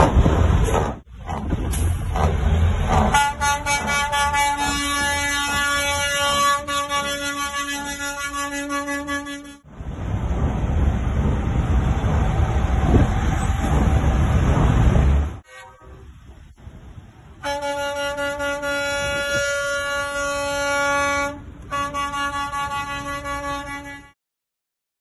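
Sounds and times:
truck air horn blast: 2.9 - 9.7, 15.4 - 16.2, 17.4 - 24.2.

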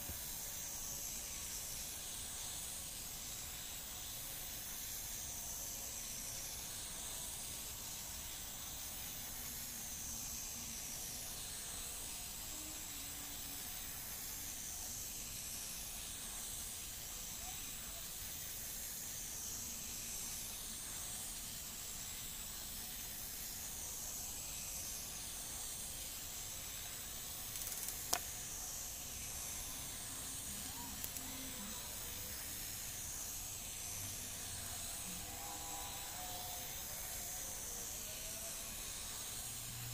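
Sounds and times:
faint steady hiss: 0.0 - 39.9
sharp click: 27.5 - 28.3, 31.0 - 31.3.

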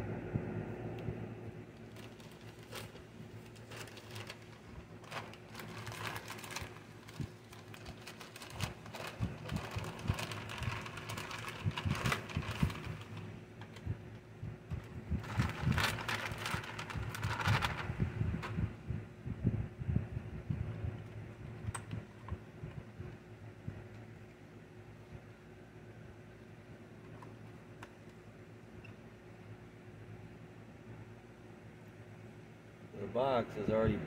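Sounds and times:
steady low hum: 0.0 - 34.0
plastic bag crinkling: 1.8 - 13.8, 15.2 - 18.0.

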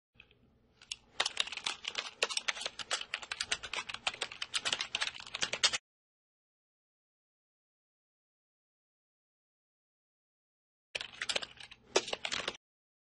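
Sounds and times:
rapid keyboard typing: 0.8 - 5.8, 11.0 - 12.6.

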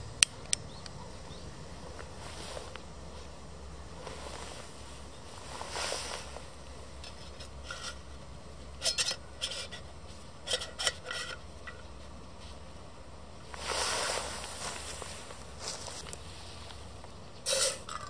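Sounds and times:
metal pot scraping on stove: 7.0 - 8.1, 8.8 - 11.8.

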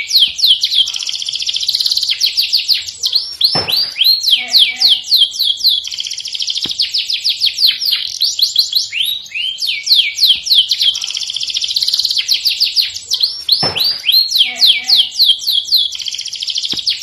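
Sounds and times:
canary singing: 0.0 - 17.0.

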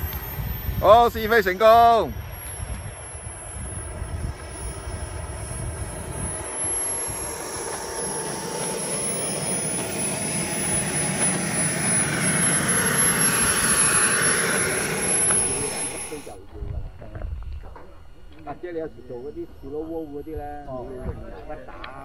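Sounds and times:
rushing exhaust hiss: 0.0 - 16.4
jet turbine whine: 0.0 - 22.0.

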